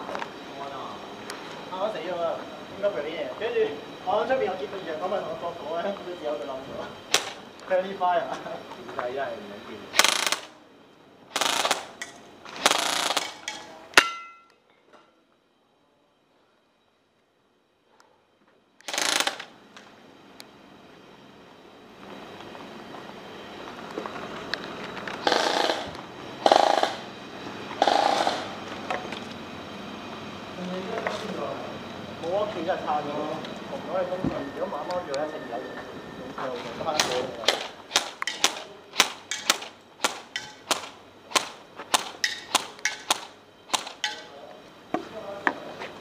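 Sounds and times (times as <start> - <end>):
airsoft gun bursts: 7.1 - 7.4, 9.9 - 10.6, 11.3 - 13.7, 18.8 - 19.5, 25.2 - 27.1, 27.8 - 28.6, 37.0 - 44.3.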